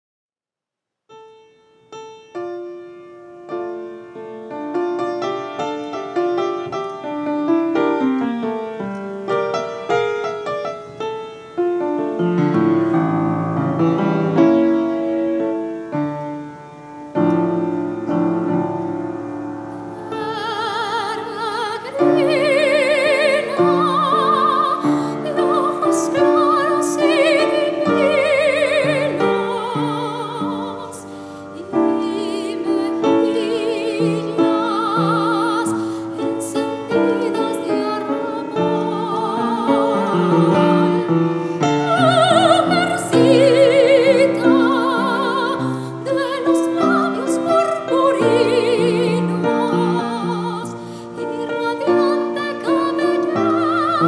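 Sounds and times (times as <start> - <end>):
solo piano: 1.1 - 54.0
soprano singing with vibrato: 19.7 - 54.0.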